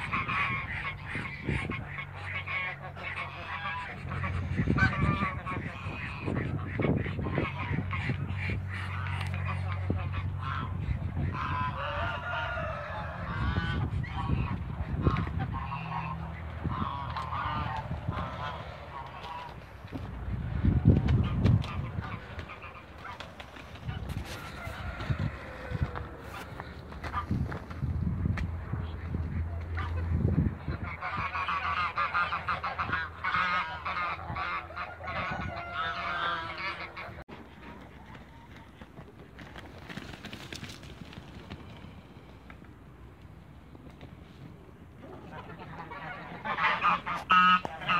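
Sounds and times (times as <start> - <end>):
geese honking: 0.0 - 27.5, 28.7 - 38.8, 44.4 - 47.9.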